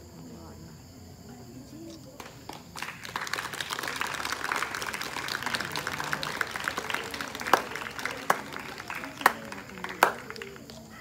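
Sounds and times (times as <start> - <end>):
loud single hand clap: 2.2 - 10.8
group of people clapping: 2.2 - 11.0.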